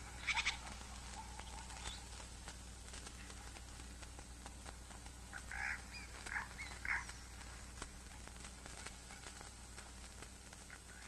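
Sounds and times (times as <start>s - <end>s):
faint low hum: 0.0s - 11.0s
light ticks: 0.0s - 11.0s
short animal calls: 0.2s - 2.2s, 5.3s - 7.2s.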